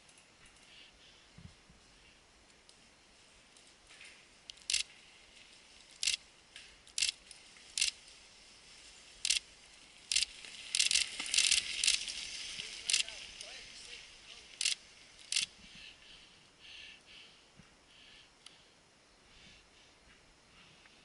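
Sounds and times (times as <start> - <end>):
bicycle freewheel buzzing: 10.1 - 12.2.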